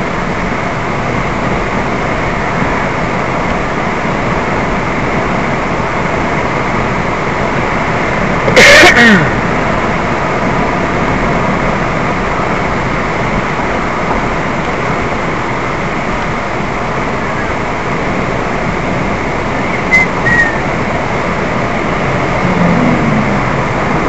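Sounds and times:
motorcycle road noise: 0:00.0 - 0:24.0
wind rush on microphone: 0:00.0 - 0:24.0
short high squeaks: 0:19.7 - 0:20.6.

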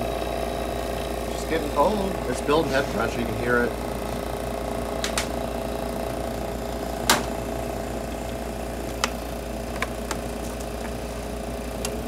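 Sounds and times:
air conditioner compressor humming: 0:00.0 - 0:12.0.

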